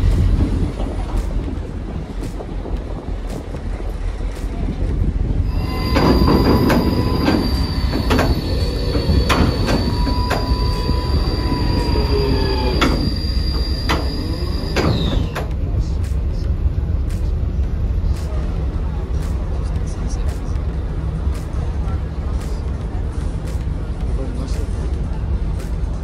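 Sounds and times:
lower whine: 0:00.0 - 0:26.0
metal-on-metal squeal: 0:05.5 - 0:15.5.

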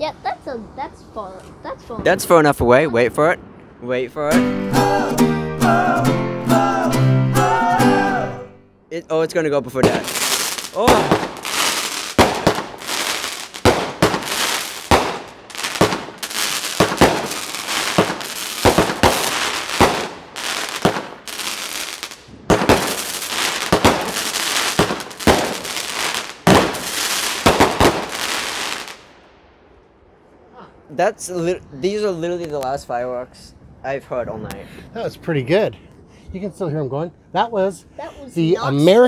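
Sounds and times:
firework hiss: 0:09.8 - 0:29.1
firework bangs: 0:09.8 - 0:29.2.

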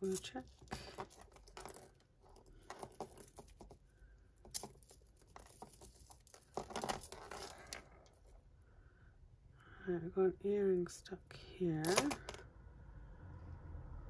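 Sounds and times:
jewellery beads clicking and rattling: 0:00.0 - 0:08.3, 0:11.8 - 0:12.3.

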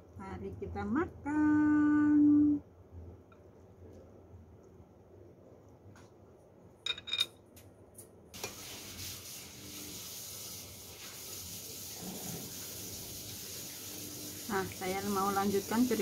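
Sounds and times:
steady hiss: 0:08.4 - 0:16.0.

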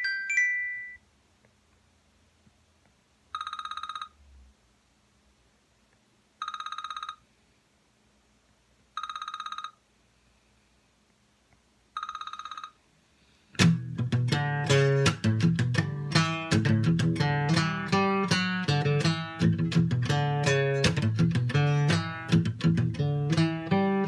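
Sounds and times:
telephone ringing: 0:00.0 - 0:01.0, 0:03.4 - 0:04.2, 0:06.4 - 0:07.2, 0:09.0 - 0:09.8, 0:12.0 - 0:12.8
acoustic guitar strummed and picked: 0:13.6 - 0:24.0.

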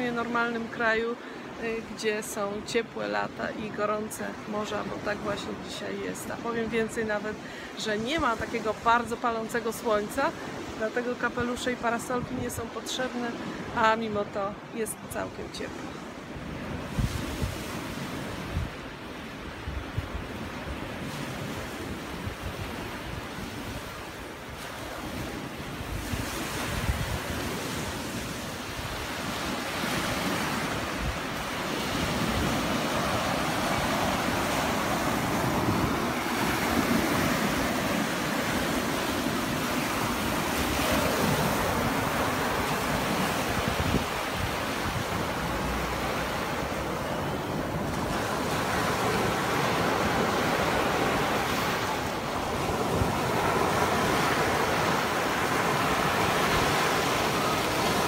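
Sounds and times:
wind buffeting microphone: 0:16.4 - 0:18.9, 0:19.6 - 0:58.0
surf breaking on beach: 0:24.0 - 0:58.0.

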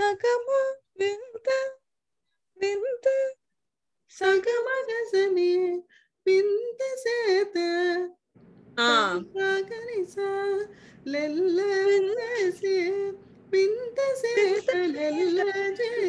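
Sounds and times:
woman singing: 0:04.2 - 0:08.2, 0:08.8 - 0:16.0.

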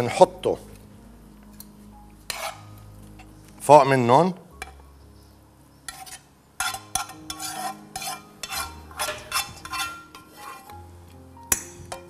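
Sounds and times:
utensil scraping frying pan: 0:02.3 - 0:03.3, 0:05.9 - 0:10.8.

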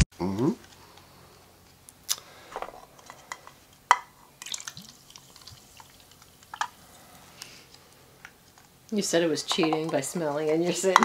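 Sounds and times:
soda pouring into glasses: 0:04.4 - 0:07.0
liquid dripping: 0:04.4 - 0:07.1.

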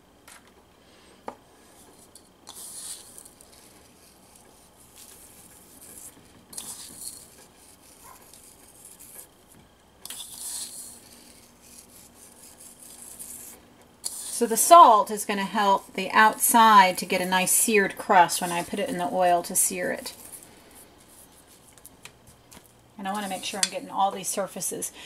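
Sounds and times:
salt grains hissing: 0:01.6 - 0:09.3, 0:10.0 - 0:21.6, 0:23.1 - 0:23.7.

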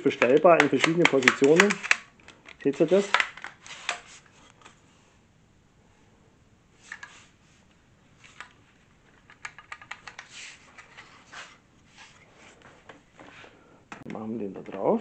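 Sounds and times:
vacuum tube clicks and taps: 0:00.2 - 0:03.5.

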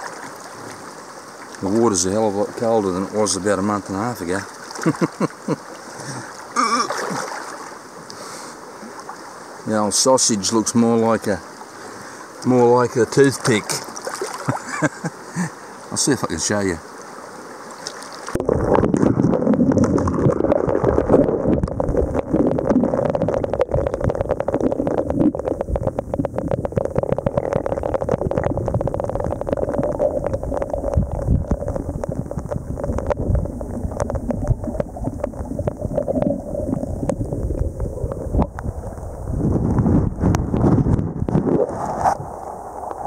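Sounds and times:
muffled underwater water gurgling: 0:18.3 - 0:43.0
gravel clicking and knocking: 0:18.7 - 0:39.1.

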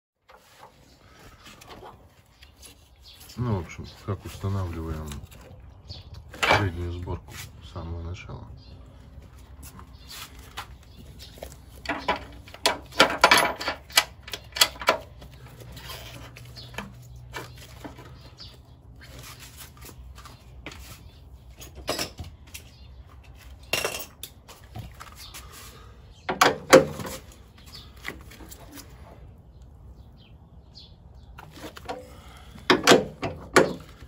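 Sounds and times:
parts and tools clattering: 0:06.2 - 0:07.0, 0:10.6 - 0:18.6, 0:19.2 - 0:25.4, 0:26.3 - 0:29.0, 0:31.4 - 0:34.0.

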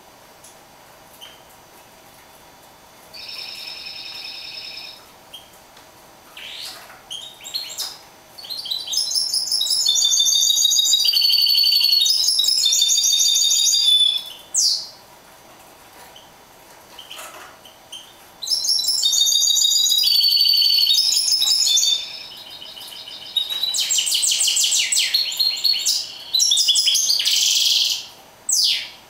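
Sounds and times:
finch singing: 0:03.2 - 0:05.0, 0:06.4 - 0:15.0, 0:18.0 - 0:29.0.

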